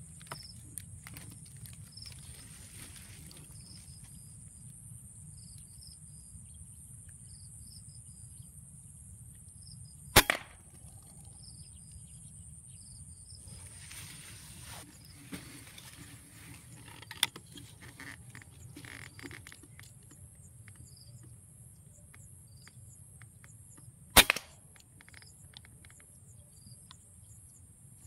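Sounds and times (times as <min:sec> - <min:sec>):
insects buzzing: 0:00.0 - 0:27.6
air rifle shot crack: 0:10.2 - 0:10.7, 0:24.2 - 0:24.6
smaller second crack: 0:10.2 - 0:10.8.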